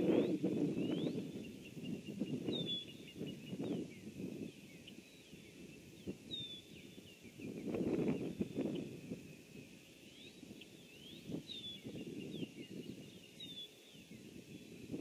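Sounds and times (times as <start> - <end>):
birds chirping: 0.0 - 15.0
low rumbling wind noise: 0.0 - 15.0.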